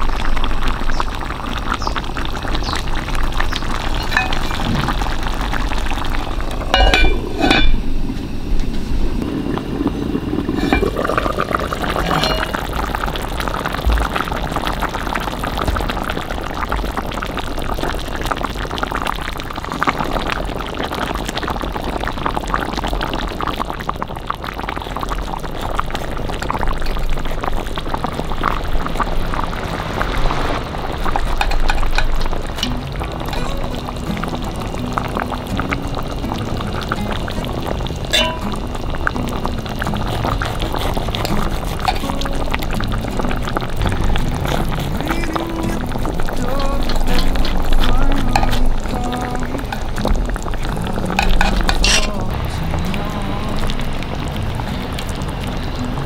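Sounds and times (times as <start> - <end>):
sauce simmering and bubbling: 0.0 - 56.0
utensils clinking against pot: 3.9 - 5.0, 6.7 - 7.8, 10.6 - 12.8, 31.4 - 33.7, 38.1 - 38.6, 40.7 - 42.3, 46.6 - 48.7, 51.2 - 52.2.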